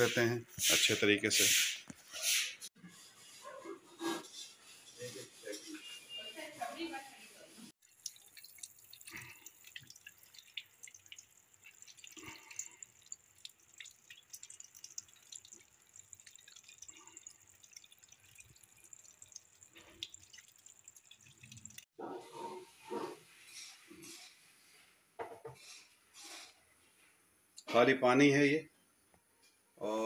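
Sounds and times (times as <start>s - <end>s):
water dripping and splashing: 7.8s - 21.9s.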